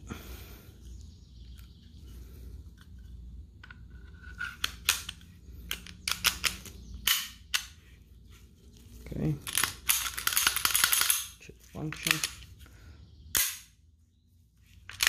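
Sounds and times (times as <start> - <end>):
metal clicks and snaps: 3.6 - 7.8.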